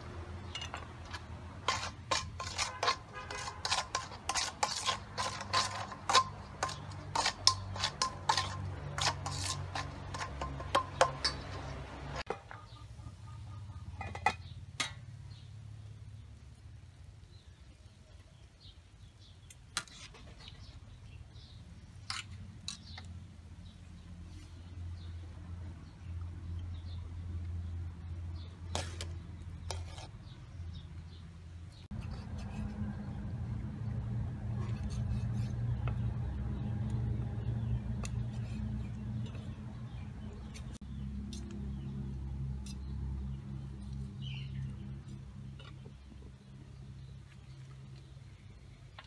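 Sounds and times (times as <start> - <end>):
tongs clinking against metal pot: 0.5 - 12.4
faint bird chirps: 12.4 - 14.6.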